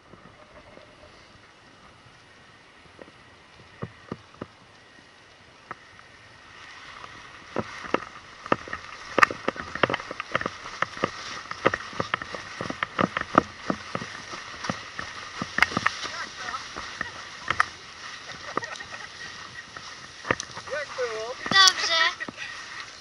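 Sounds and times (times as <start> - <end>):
wind rushing through grass: 0.0 - 23.0
footsteps running on grass: 7.4 - 23.0.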